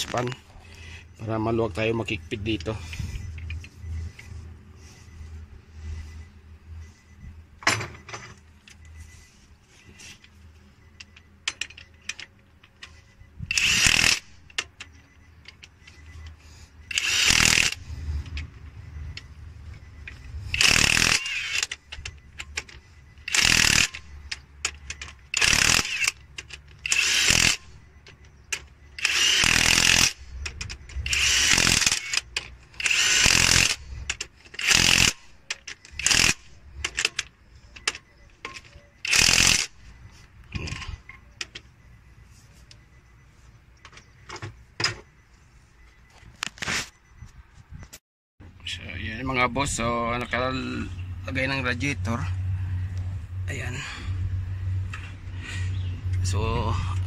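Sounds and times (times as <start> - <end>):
impact wrench hammering bolts: 16.9 - 18.5, 20.5 - 39.7.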